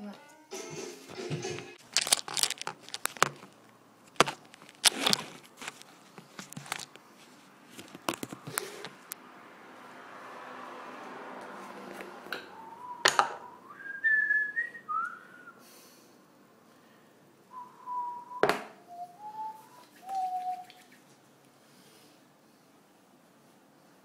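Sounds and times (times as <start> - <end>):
person whistling: 12.5 - 15.6, 17.5 - 20.8.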